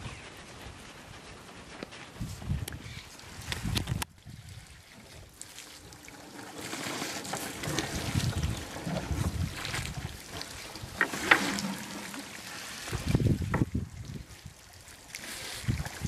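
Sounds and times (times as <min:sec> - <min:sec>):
wind rumbling on microphone: 0:00.0 - 0:05.4, 0:07.4 - 0:16.0
outdoor ambience: 0:00.0 - 0:16.0.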